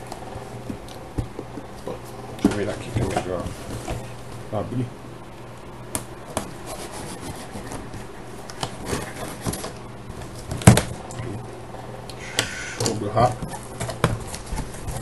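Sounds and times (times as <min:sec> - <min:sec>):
scraping on cardboard and tape: 0:06.3 - 0:09.8, 0:13.4 - 0:15.0.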